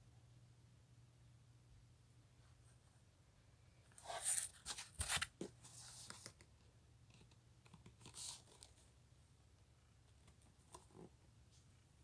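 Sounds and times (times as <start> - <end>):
cardboard rustling and scraping: 4.0 - 6.4.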